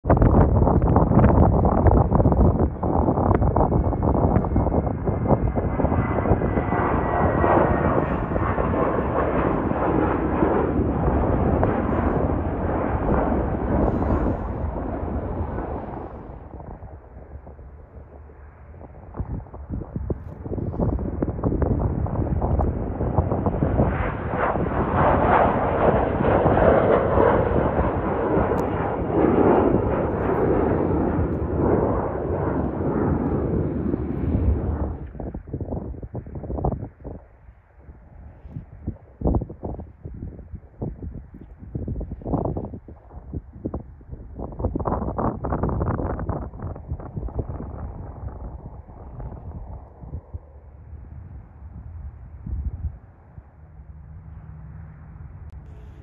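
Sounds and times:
jet engine rumble: 0.0s - 56.0s
faint high jet whine: 1.8s - 35.3s, 48.9s - 56.0s.

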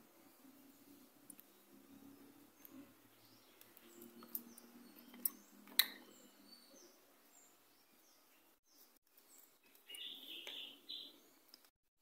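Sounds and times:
faint bird chirps: 0.2s - 11.5s.

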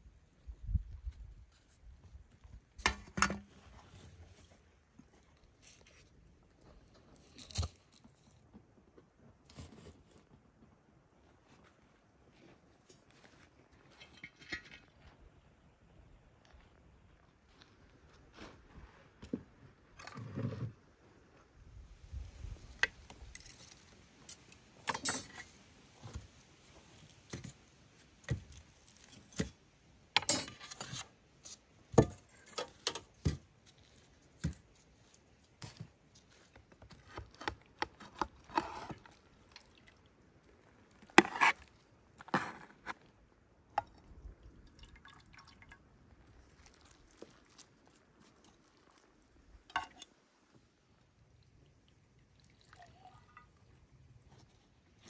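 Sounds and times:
metal skewers clinking on a tray: 23.4s - 25.5s.

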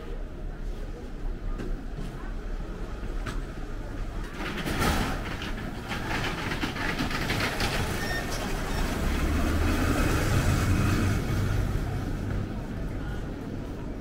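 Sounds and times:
luggage wheels rattling on floor: 4.3s - 9.4s.

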